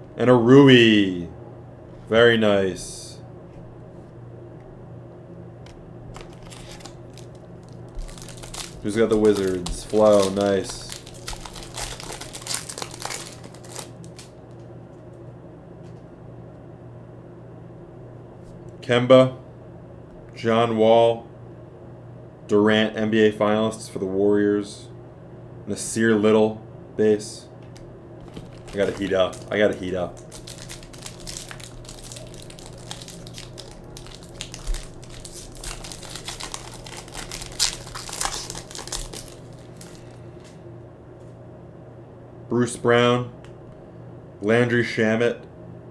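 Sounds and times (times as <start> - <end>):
foil wrapper crinkling: 6.1 - 14.6, 28.2 - 40.2.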